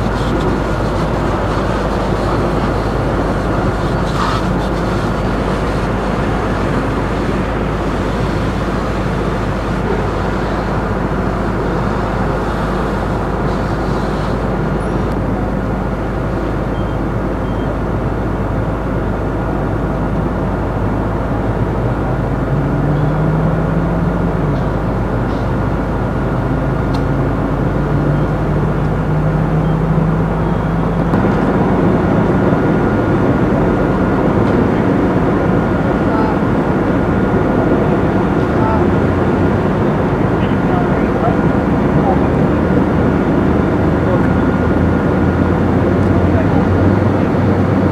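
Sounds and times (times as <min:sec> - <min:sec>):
fire engine rumbling: 0:00.0 - 0:47.9
rising engine notes: 0:19.5 - 0:47.9
faint steady whine: 0:24.2 - 0:47.9.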